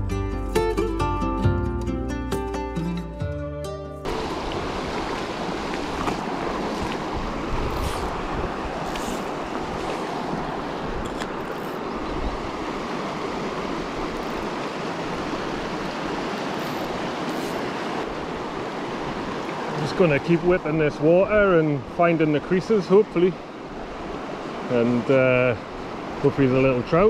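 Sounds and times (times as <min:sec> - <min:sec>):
river running over rocks: 0:04.0 - 0:27.0
wind rumbling on microphone: 0:04.1 - 0:19.6.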